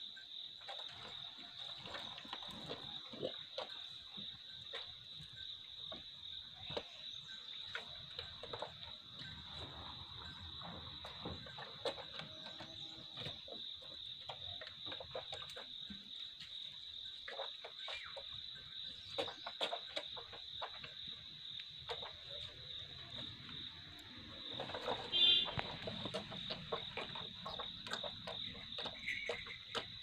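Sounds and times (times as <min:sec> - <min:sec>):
calf lapping milk: 0:00.6 - 0:30.0.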